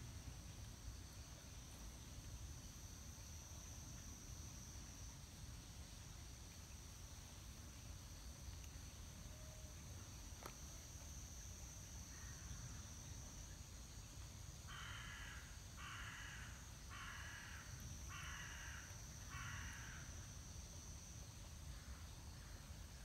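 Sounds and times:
crow cawing: 14.7s - 20.0s.

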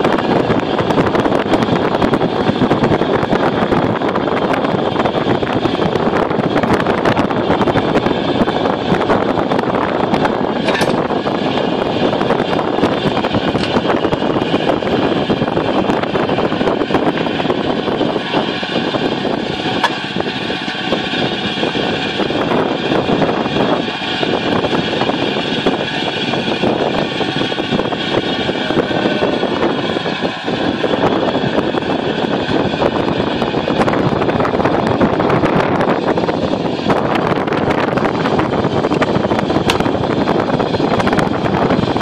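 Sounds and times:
engine whining: 0.0s - 42.0s
loud rushing noise: 0.0s - 42.0s.

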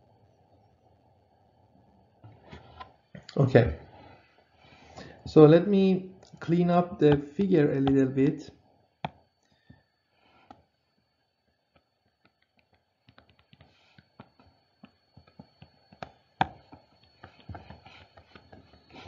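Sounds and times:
stylus tapping tablet screen: 7.1s - 8.1s, 9.0s - 9.8s, 11.7s - 19.0s.

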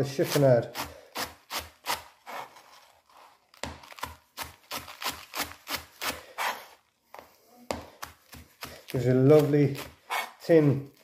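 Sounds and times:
knife slicing lettuce on board: 7.8s - 11.0s.

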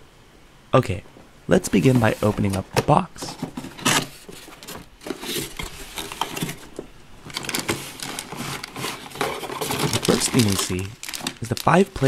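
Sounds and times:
cardboard box rustling: 1.6s - 12.0s
plastic toy pieces clattering: 7.3s - 12.0s.

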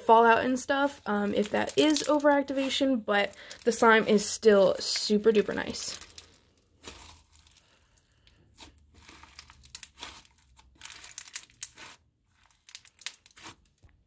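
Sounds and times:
slime squished by hand crackling: 8.5s - 13.8s.

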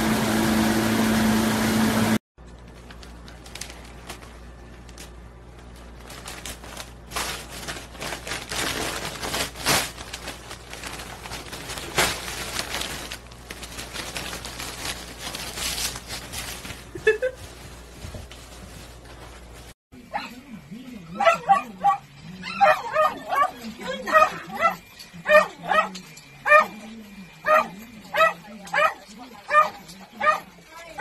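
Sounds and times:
bag rustling and crinkling: 2.4s - 19.8s.

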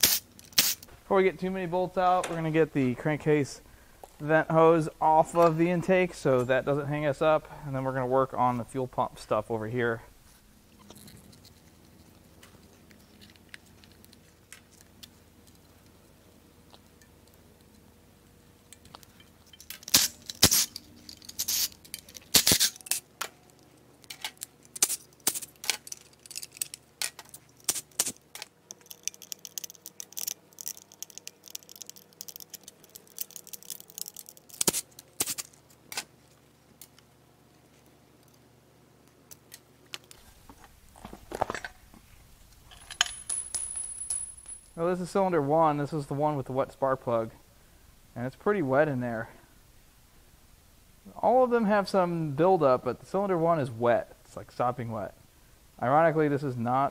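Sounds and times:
metal fittings clicking and clinking: 24.0s - 34.8s.

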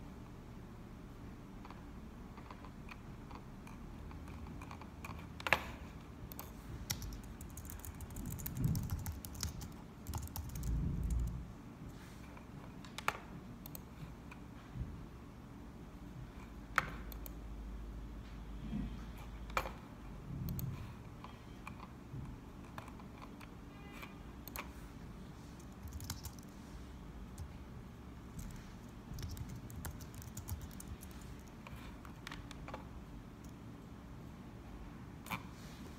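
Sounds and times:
computer key clicks: 6.3s - 11.4s, 25.6s - 26.4s, 29.2s - 32.8s.

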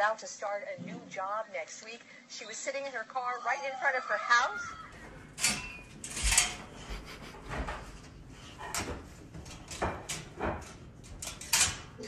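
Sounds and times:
wire crate door rattling: 4.9s - 12.0s.

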